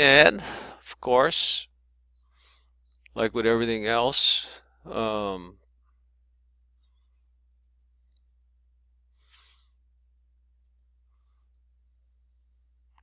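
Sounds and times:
computer mouse clicks: 0:07.6 - 0:08.3, 0:10.6 - 0:11.7, 0:12.3 - 0:13.0.

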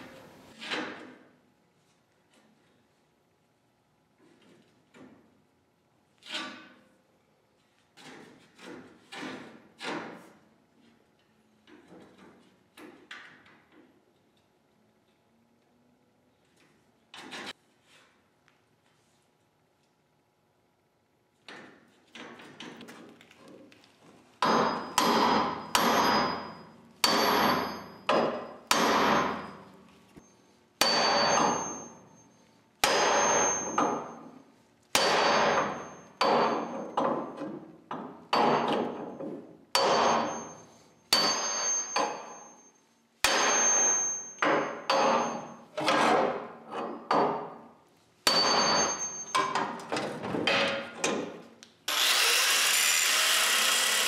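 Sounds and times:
sledgehammer striking steel: 0:24.4 - 0:29.8, 0:30.8 - 0:32.2, 0:32.8 - 0:34.3, 0:35.0 - 0:37.4, 0:38.3 - 0:39.2, 0:39.8 - 0:46.6, 0:48.3 - 0:49.8
angle grinder grinding: 0:51.9 - 0:54.0.

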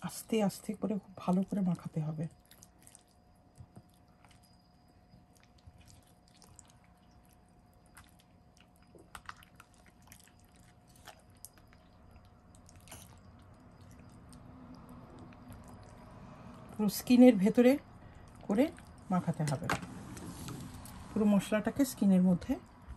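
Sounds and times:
wet squishing of kneading hands: 0:01.2 - 0:19.2.

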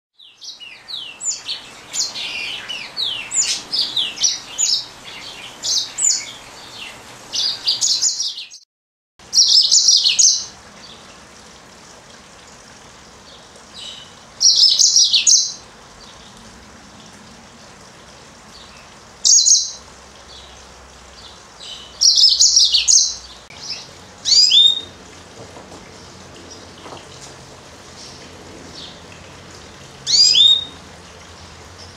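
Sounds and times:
canary singing: 0:13.8 - 0:15.6, 0:19.2 - 0:19.8, 0:21.6 - 0:25.0, 0:30.0 - 0:30.8.

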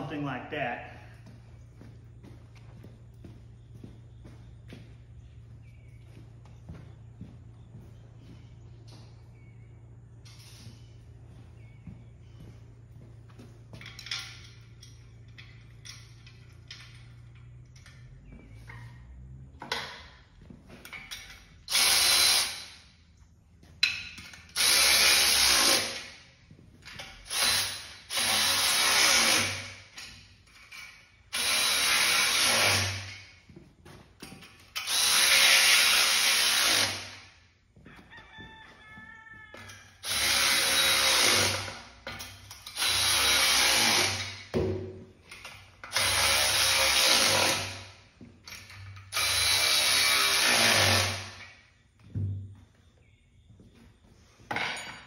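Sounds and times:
cordless drill driving bolts: 0:20.9 - 0:22.8, 0:24.3 - 0:26.2, 0:26.9 - 0:30.0, 0:30.6 - 0:33.2, 0:34.7 - 0:37.2, 0:39.7 - 0:44.5, 0:45.3 - 0:47.8, 0:48.5 - 0:51.5.

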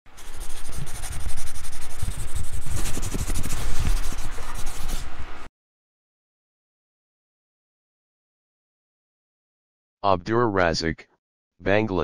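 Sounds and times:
rushing scraping noise: 0:00.2 - 0:05.1.

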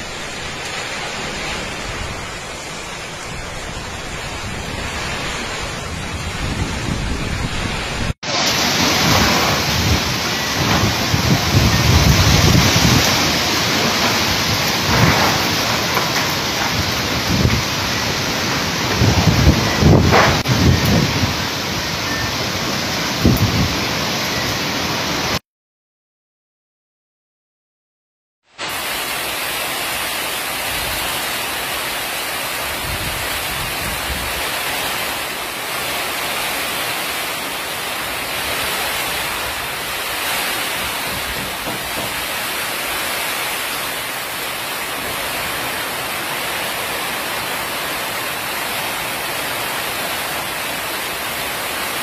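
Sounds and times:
low rumbles: 0:00.0 - 0:22.3
heavy rain pouring: 0:00.0 - 0:25.4, 0:28.6 - 0:52.0.

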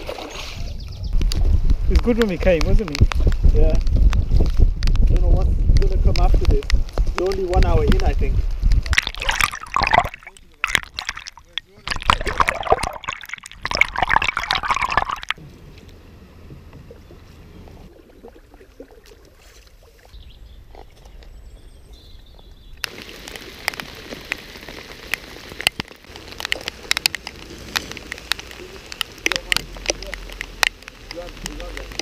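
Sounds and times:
river water splashing: 0:00.0 - 0:00.7, 0:08.9 - 0:15.4, 0:17.0 - 0:20.2
water lapping: 0:00.0 - 0:00.8, 0:08.9 - 0:15.4, 0:17.1 - 0:21.2
raindrop hits: 0:01.1 - 0:15.4, 0:22.8 - 0:32.0
steady rain hissing: 0:01.2 - 0:08.8, 0:22.8 - 0:32.0.

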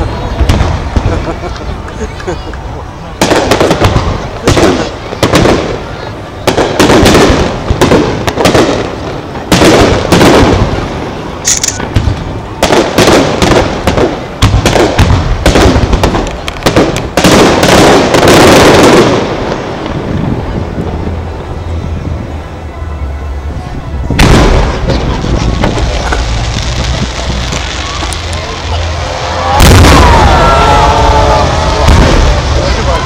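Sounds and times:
firework crackling: 0:00.0 - 0:33.0
firework shells bursting: 0:11.4 - 0:12.0
firework whistle: 0:20.4 - 0:33.0.

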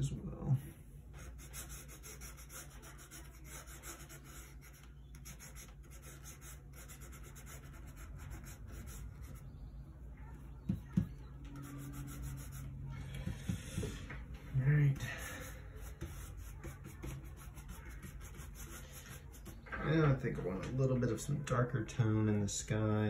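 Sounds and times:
brush scrubbing paint: 0:01.1 - 0:09.6, 0:11.5 - 0:13.9, 0:14.7 - 0:19.7.

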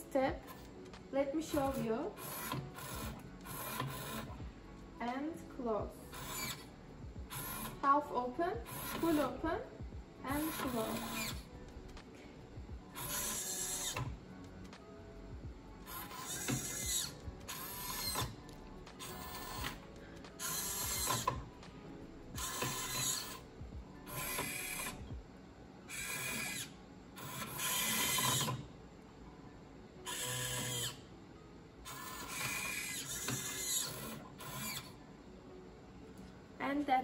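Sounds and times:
servo motors whirring: 0:01.5 - 0:04.4, 0:06.1 - 0:06.7, 0:08.6 - 0:09.4, 0:10.3 - 0:11.4, 0:13.0 - 0:14.1, 0:15.9 - 0:18.4, 0:19.0 - 0:19.8, 0:20.4 - 0:21.4, 0:22.4 - 0:23.4, 0:24.1 - 0:25.0, 0:25.9 - 0:28.6, 0:31.9 - 0:34.9.

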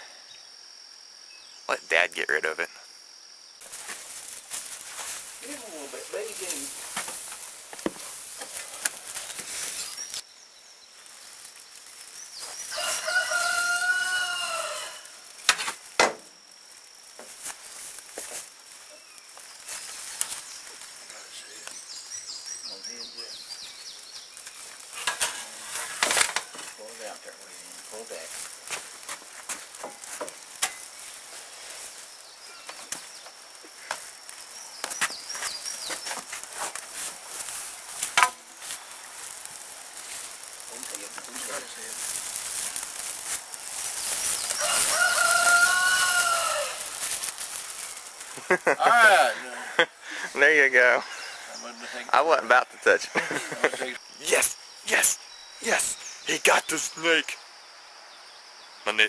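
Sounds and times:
high insect drone: 0:00.0 - 0:59.0
rustling: 0:03.6 - 0:10.2, 0:16.6 - 0:49.4
bird chirps: 0:08.7 - 0:15.1, 0:18.9 - 0:25.0, 0:34.5 - 0:36.3, 0:54.0 - 0:57.5
chicken calling: 0:12.6 - 0:15.2, 0:44.3 - 0:47.2
cloth sack rustling: 0:35.1 - 0:48.5.

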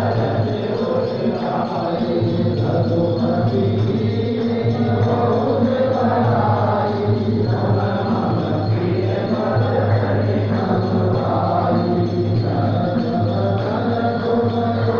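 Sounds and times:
voices chanting together: 0:00.0 - 0:14.9.

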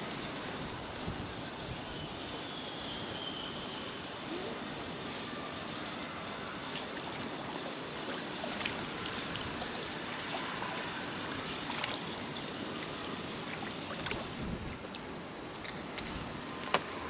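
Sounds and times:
wind: 0:00.0 - 0:17.0
river water rushing: 0:06.4 - 0:17.0.

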